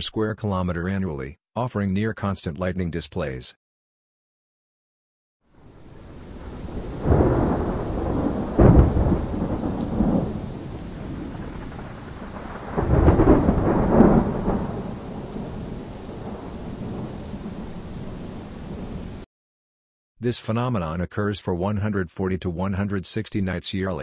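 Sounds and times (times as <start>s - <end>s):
steady rain: 5.5s - 19.3s
thunder rumbling: 5.6s - 19.2s
sharp thunder clap: 5.9s - 19.2s.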